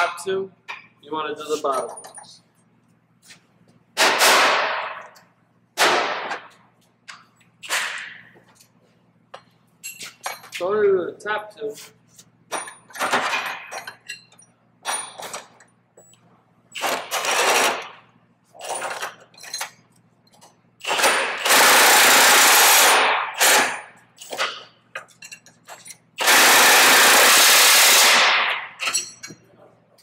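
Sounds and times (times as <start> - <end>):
impact gun hammering bolts: 4.0 - 5.2, 5.8 - 6.6, 12.5 - 14.0, 20.8 - 29.4.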